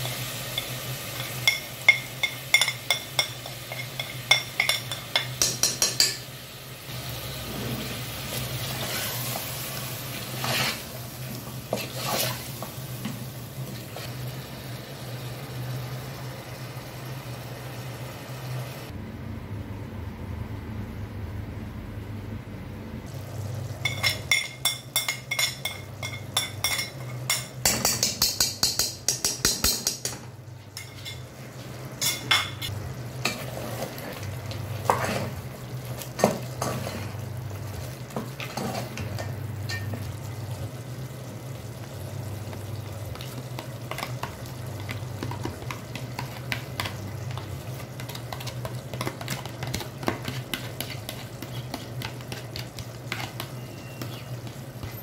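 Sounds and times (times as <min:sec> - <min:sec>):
frying sizzle: 0:00.0 - 0:19.0, 0:23.0 - 0:55.0
spoon scraping a metal pot: 0:10.2 - 0:10.9, 0:11.7 - 0:12.5, 0:48.0 - 0:55.0.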